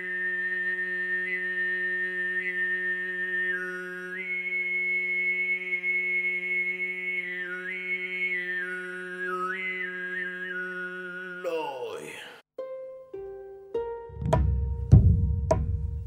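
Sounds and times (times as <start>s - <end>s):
man throat singing: 7.4s - 12.4s.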